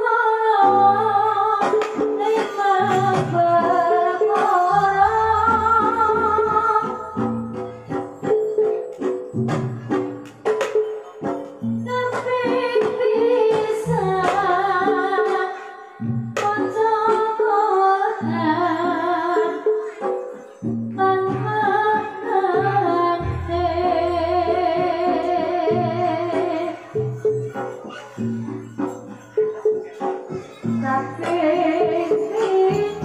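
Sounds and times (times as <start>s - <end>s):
woman singing wavering melody: 0.0s - 8.8s, 11.6s - 27.4s, 30.8s - 33.0s
gamelan ensemble playing: 0.7s - 15.2s, 15.8s - 33.0s
low drum strokes: 23.2s - 26.0s.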